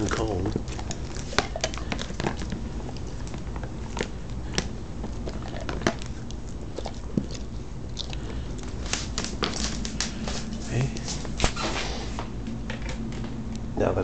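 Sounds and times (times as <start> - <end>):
dog biting treat: 0.0 - 10.5.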